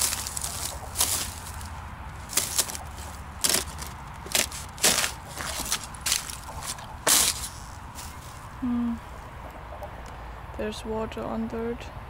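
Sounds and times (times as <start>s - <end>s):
thin ice cracking underfoot: 0.0s - 8.4s.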